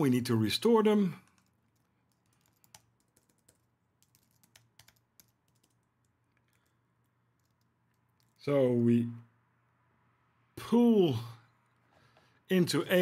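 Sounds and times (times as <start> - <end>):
typing on computer keyboard: 1.2 - 6.8, 7.4 - 8.4.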